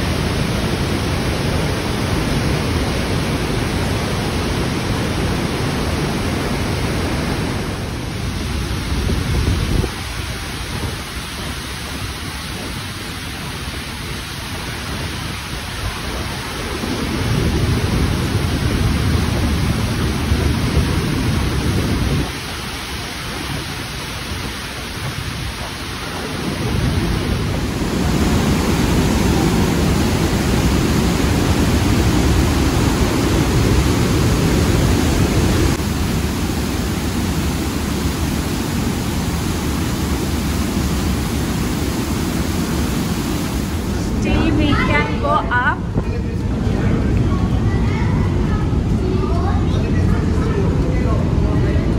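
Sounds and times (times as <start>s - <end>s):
waterfall roaring: 0.0s - 51.9s.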